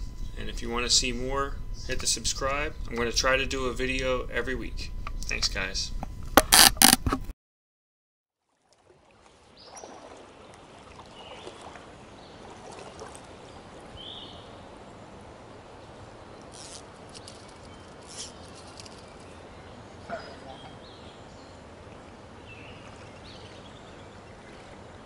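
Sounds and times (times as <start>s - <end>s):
creek water trickling: 8.4s - 25.0s.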